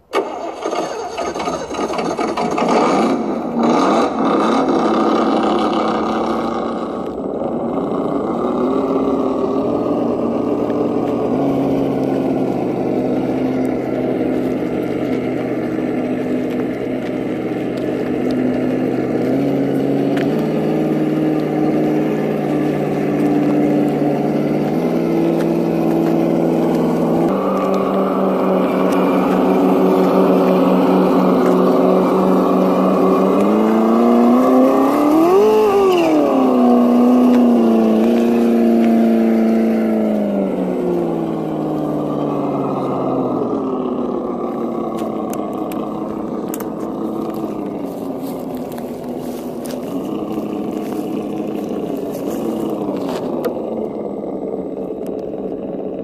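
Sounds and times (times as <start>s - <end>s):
synthetic truck engine revving: 0.0s - 56.0s.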